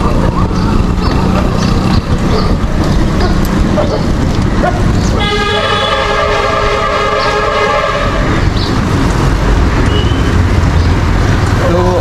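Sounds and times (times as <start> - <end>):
multi-tone horn blaring: 5.2 - 8.6.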